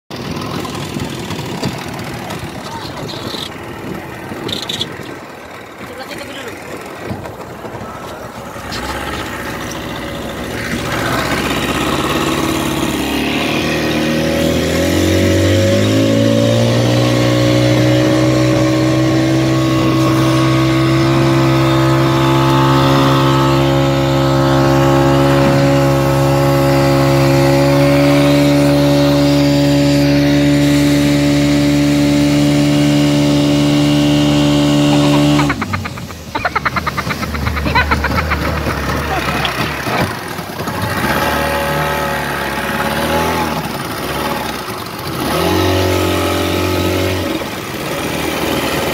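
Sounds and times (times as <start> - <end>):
watercraft engine running: 0.1 - 48.9
choppy uneven noise: 34.9 - 40.8.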